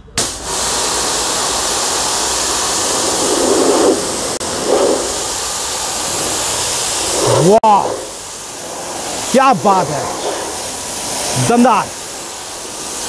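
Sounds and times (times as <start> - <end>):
pressure washer water jet hissing: 0.0 - 13.0.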